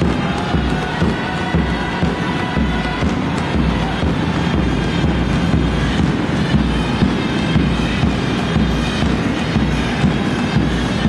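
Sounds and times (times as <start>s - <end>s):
folk dance music over speakers: 0.0s - 11.0s.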